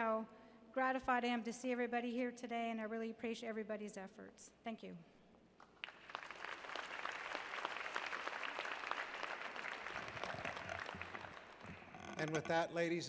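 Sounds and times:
audience applauding: 0:05.7 - 0:12.4.

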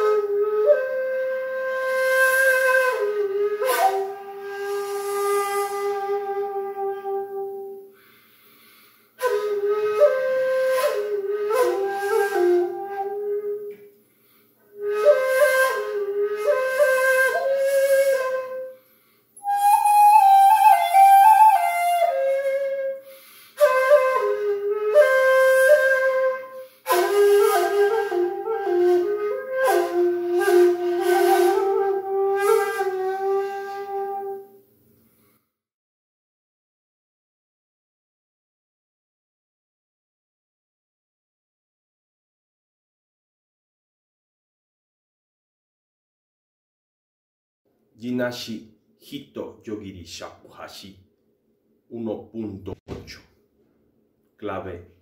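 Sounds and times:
bamboo flute playing slow phrases: 0:00.0 - 0:08.0, 0:09.2 - 0:13.9, 0:14.7 - 0:34.6.

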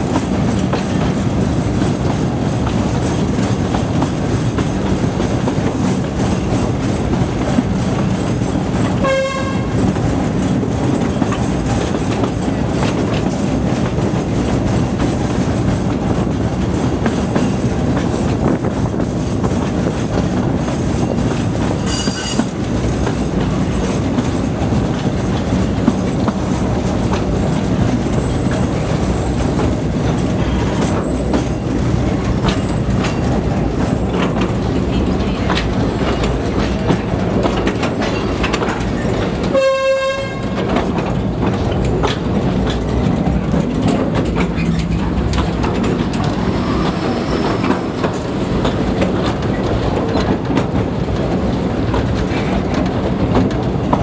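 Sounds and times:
train carriage rumbling on track: 0:00.0 - 0:54.0
high-pitched train horn: 0:09.0 - 0:09.8, 0:21.9 - 0:22.4, 0:39.5 - 0:40.6.

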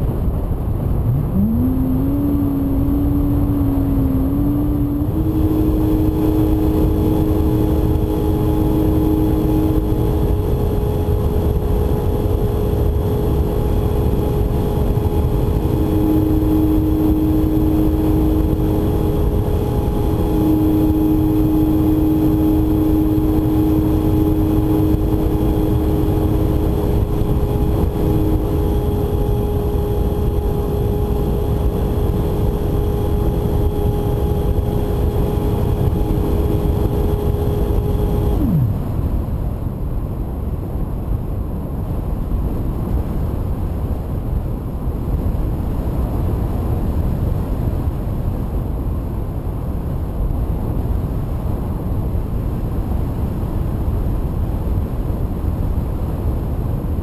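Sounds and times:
wind rumble on microphone: 0:00.0 - 0:57.0
lower tone: 0:00.6 - 0:39.4
electric motor and propeller whining: 0:00.8 - 0:39.3.

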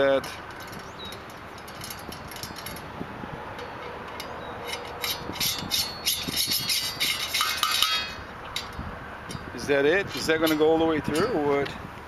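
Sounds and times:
metal clicking and scraping: 0:00.0 - 0:09.5.

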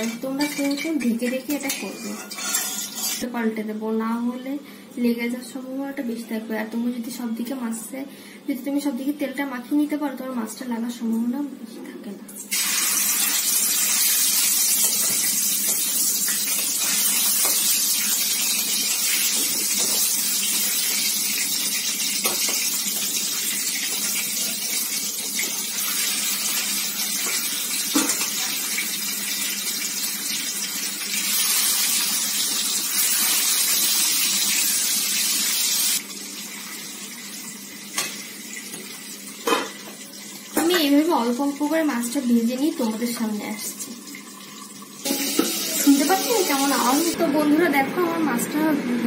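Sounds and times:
fish frying in hot oil: 0:12.5 - 0:40.5, 0:44.8 - 0:47.2.

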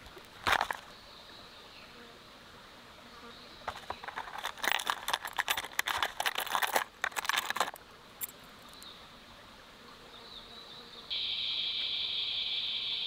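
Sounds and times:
faint high insect buzz: 0:00.0 - 0:04.3, 0:07.7 - 0:13.0
fishing lures rattling in plastic box: 0:00.5 - 0:00.8, 0:03.7 - 0:07.8.

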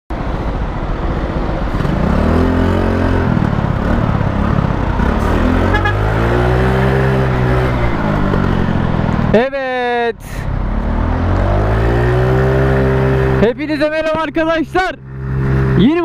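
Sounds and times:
road and wind noise: 0:00.1 - 0:16.0
scooter engine accelerating: 0:01.6 - 0:09.4, 0:10.8 - 0:13.5.

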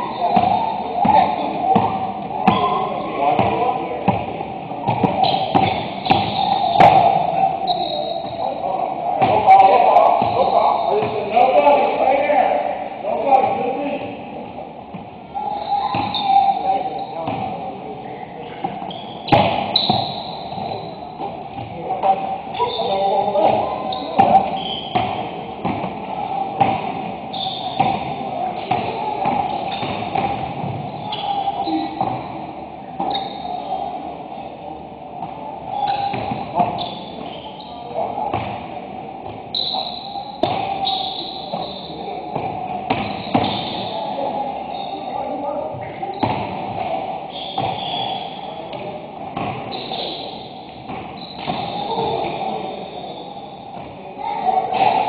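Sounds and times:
sneaker squeaks: 0:00.0 - 0:12.4, 0:14.9 - 0:34.5, 0:35.2 - 0:38.6, 0:39.2 - 0:55.0
short high squeaks: 0:18.8 - 0:21.0, 0:39.6 - 0:42.0.

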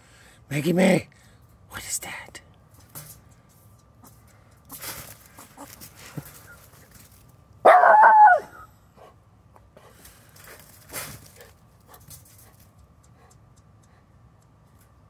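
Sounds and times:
rustling and scraping: 0:02.7 - 0:07.5, 0:09.6 - 0:12.8
dog barking: 0:07.6 - 0:08.6.

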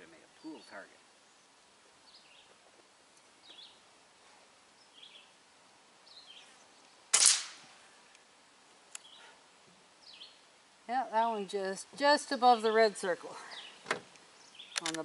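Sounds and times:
air rifle shot: 0:07.1 - 0:07.6
faint bird chirps: 0:09.0 - 0:09.4.

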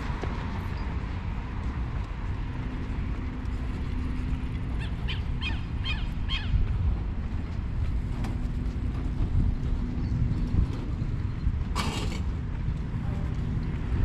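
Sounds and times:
wind rumble on microphone: 0:00.0 - 0:14.0
bird calling harshly: 0:04.8 - 0:06.5.

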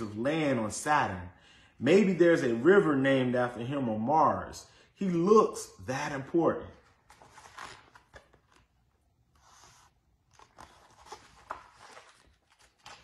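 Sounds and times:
book pages turning: 0:06.8 - 0:13.0.

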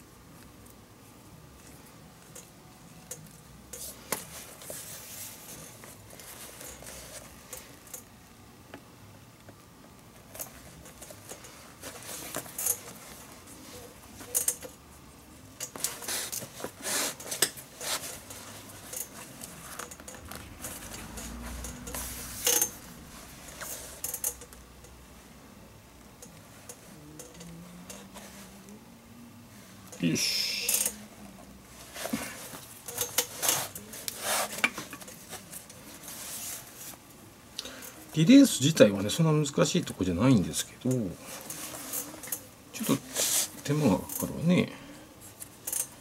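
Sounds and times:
rustles and scrapes of leather: 0:03.7 - 0:07.9, 0:15.7 - 0:24.0, 0:31.7 - 0:37.1, 0:41.2 - 0:44.4.

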